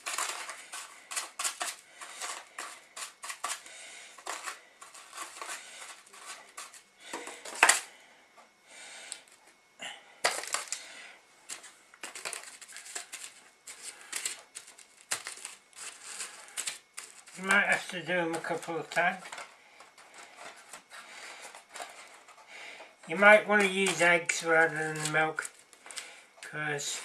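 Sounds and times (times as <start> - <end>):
chips crunching in a plastic tub: 0.0 - 7.9, 10.2 - 22.4, 23.1 - 27.0
foil trays crinkling and clattering: 0.0 - 7.9, 10.2 - 27.0.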